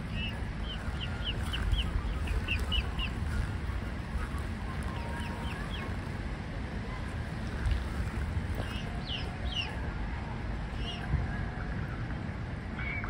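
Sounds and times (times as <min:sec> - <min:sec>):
cygnets peeping: 0:00.0 - 0:06.3, 0:07.3 - 0:09.9, 0:10.7 - 0:11.1
wind rumble on microphone: 0:00.0 - 0:13.0.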